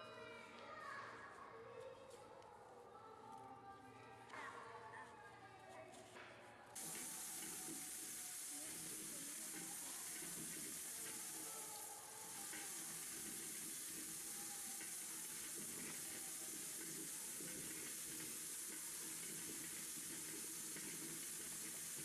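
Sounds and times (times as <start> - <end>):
steady static hiss: 6.8 - 22.0.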